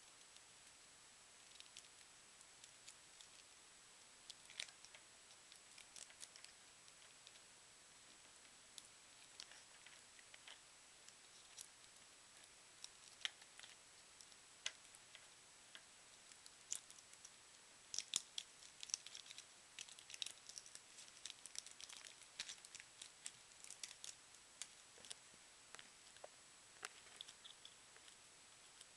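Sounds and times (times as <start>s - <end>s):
candy wrappers crackling: 4.2s - 7.5s, 8.7s - 11.9s, 12.7s - 28.9s.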